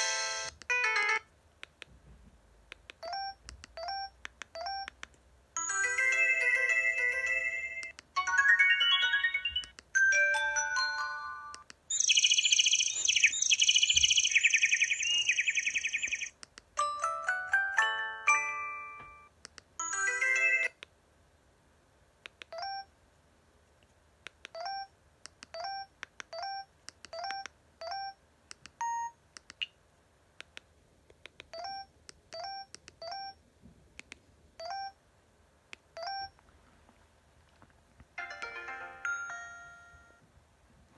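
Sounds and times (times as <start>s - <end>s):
electronic ringtone melody: 0.0s - 1.3s, 5.6s - 16.2s, 16.8s - 19.0s, 19.8s - 20.8s, 38.2s - 40.2s.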